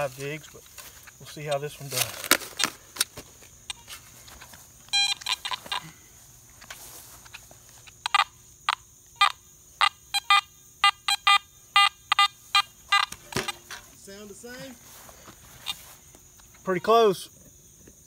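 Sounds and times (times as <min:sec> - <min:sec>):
metal detector beeping: 0:03.6 - 0:04.3, 0:04.9 - 0:06.0, 0:07.9 - 0:13.8, 0:15.6 - 0:15.9, 0:16.6 - 0:17.2.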